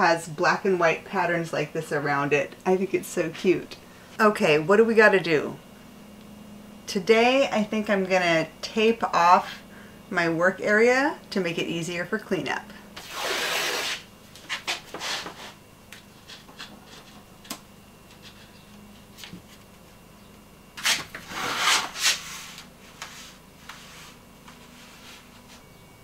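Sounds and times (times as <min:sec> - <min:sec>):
tape ripping off roll: 0:13.0 - 0:15.3, 0:20.8 - 0:22.2.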